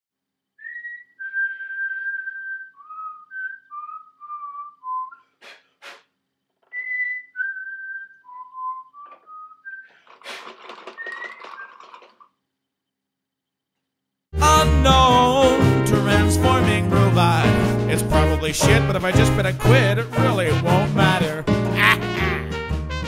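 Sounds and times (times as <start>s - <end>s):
person whistling a tune: 0.6s - 5.3s, 6.7s - 9.9s
clatter: 10.0s - 12.4s.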